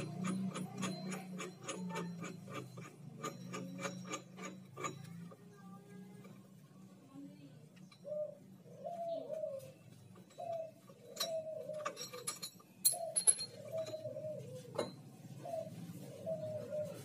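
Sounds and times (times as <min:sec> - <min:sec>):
dove cooing: 0:07.9 - 0:17.0
metallic clinks of steel tool: 0:11.1 - 0:14.0.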